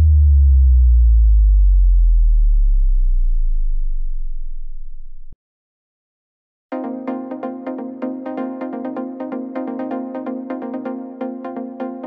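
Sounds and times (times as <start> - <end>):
deep synthesized bass tone sliding down: 0.0 - 5.4.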